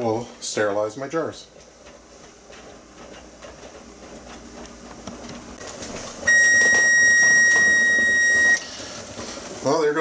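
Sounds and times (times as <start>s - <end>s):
kitchen timer beep: 6.3s - 8.6s.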